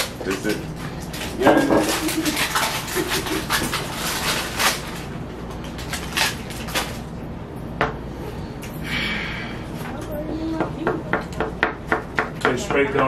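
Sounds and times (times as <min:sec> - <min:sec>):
cookie crunching: 0:00.0 - 0:07.1.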